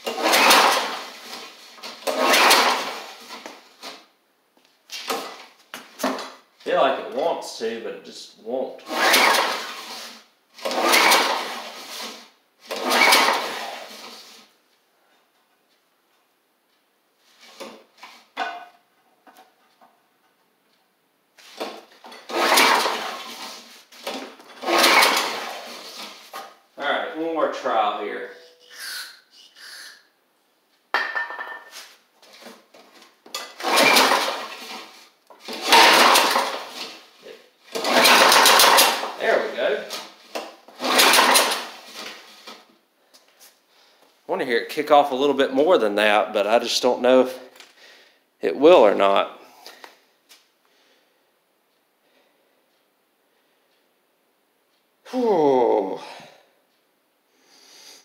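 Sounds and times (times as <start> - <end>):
mower engine cranking: 0.0 - 4.0, 5.0 - 6.4, 8.8 - 14.4, 21.4 - 26.6, 33.3 - 42.7
recoil starter rope pulled: 0.0 - 4.1, 4.9 - 6.4, 8.8 - 14.5, 21.4 - 26.6, 31.8 - 42.7.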